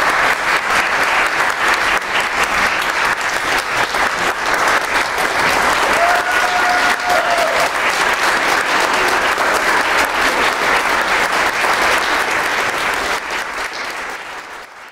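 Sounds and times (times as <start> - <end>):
audience applauding: 0.0 - 14.9
person cheering: 5.8 - 7.8.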